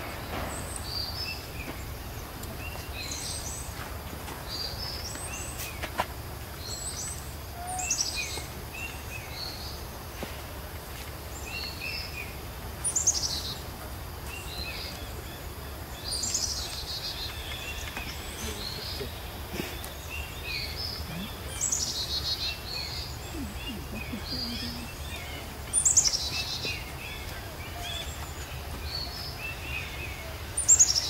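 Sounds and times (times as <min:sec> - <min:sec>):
birds chirping: 0:00.0 - 0:10.7, 0:11.3 - 0:31.0
steady low hum: 0:17.0 - 0:28.7.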